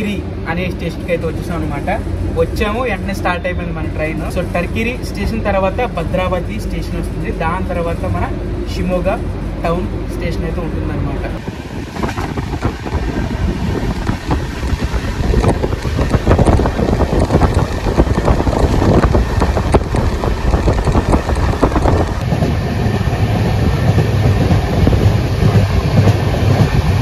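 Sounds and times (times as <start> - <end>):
train wheels rumbling on track: 0.0 - 27.0
wind on microphone: 11.4 - 27.0.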